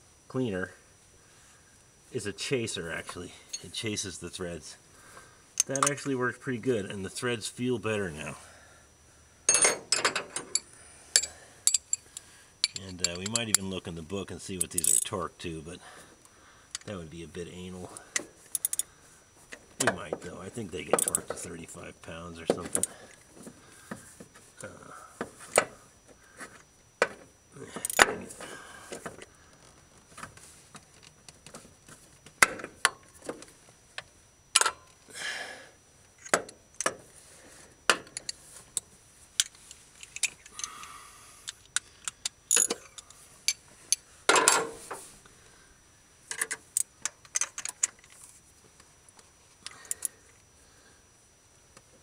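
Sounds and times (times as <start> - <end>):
hand tools clinking on metal: 9.5 - 12.0, 12.6 - 13.6.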